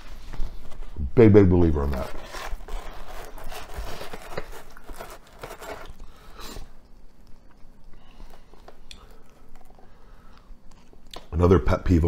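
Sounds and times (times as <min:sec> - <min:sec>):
person chewing a sandwich: 0:02.7 - 0:11.3
small mouth clicks: 0:08.7 - 0:09.8.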